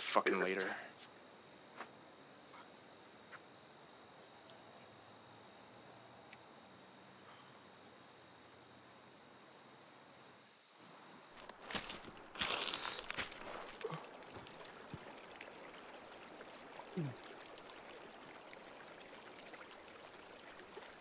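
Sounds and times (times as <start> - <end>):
insects chirring: 0.0 - 21.0
footsteps on stones: 11.3 - 15.0.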